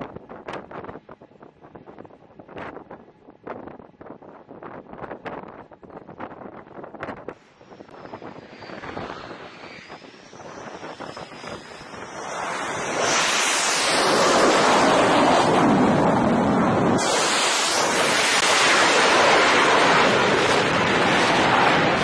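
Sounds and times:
wind on microphone: 0.0s - 22.0s
jet aircraft roar: 7.2s - 22.0s.

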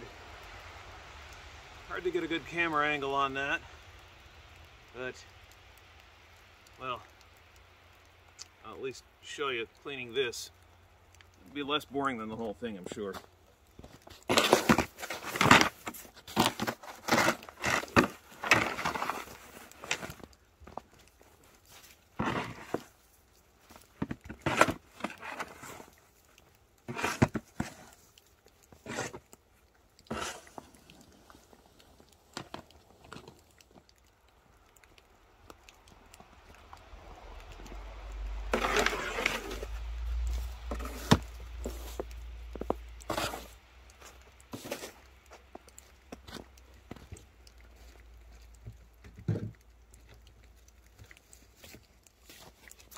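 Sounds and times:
snow crunching: 11.6s - 33.6s, 36.2s - 47.0s
snow shovel scraping wet snow: 14.2s - 20.2s, 21.7s - 22.9s, 24.0s - 25.9s, 26.9s - 28.1s, 28.8s - 29.3s, 30.1s - 31.4s, 38.5s - 45.1s.

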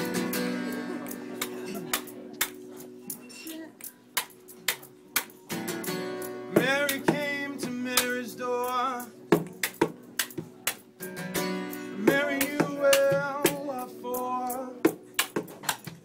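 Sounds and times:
plucked and strummed guitar: 0.0s - 16.0s
person singing: 6.5s - 9.5s, 11.7s - 15.0s.

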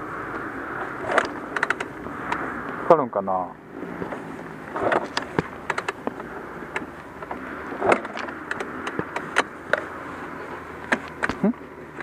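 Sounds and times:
motorcycle engine idling: 0.0s - 12.0s
sharp clicks and knocks: 1.0s - 2.4s, 4.0s - 9.9s, 10.8s - 12.0s.

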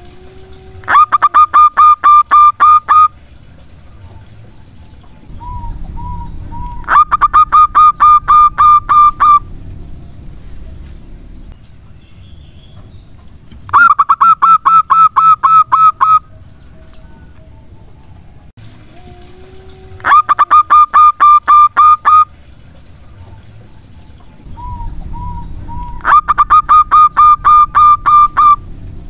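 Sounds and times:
dove cooing: 0.0s - 3.2s, 5.3s - 11.3s, 19.0s - 22.3s, 24.5s - 28.7s.

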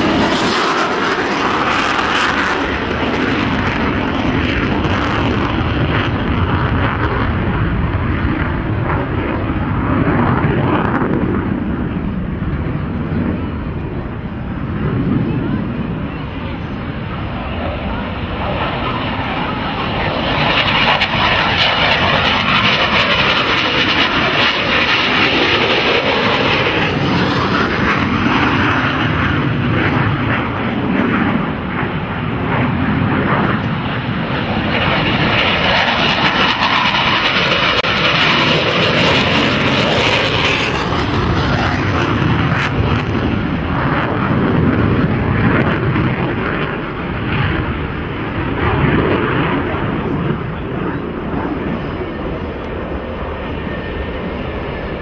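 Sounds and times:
jet engines roaring: 0.0s - 55.0s.

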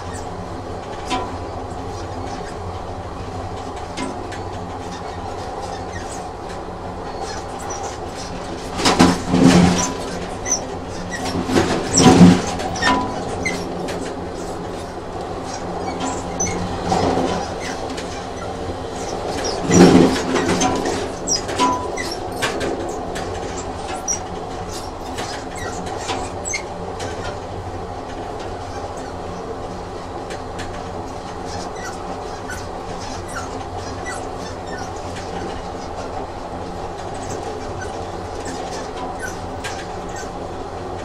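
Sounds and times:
train running on rails: 0.0s - 41.0s.

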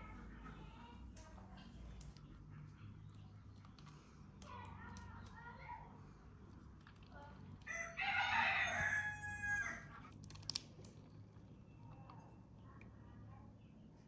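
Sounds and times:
rooster crowing: 7.7s - 10.0s.

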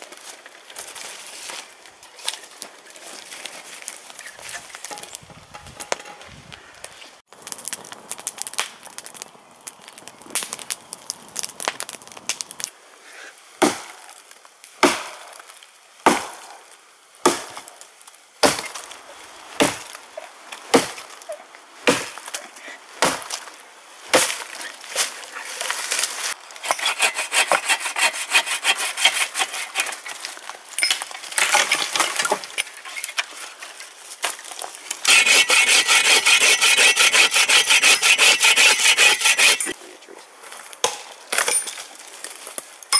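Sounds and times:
bow saw cutting log: 26.6s - 30.1s, 35.1s - 39.8s.

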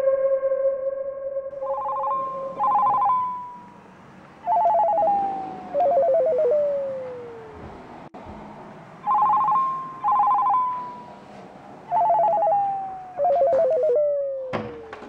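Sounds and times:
steady held tone: 0.0s - 7.6s, 9.0s - 11.1s, 11.8s - 14.9s
electronic telephone ringing: 1.6s - 3.8s, 4.4s - 6.2s, 9.0s - 11.0s, 11.9s - 13.8s.

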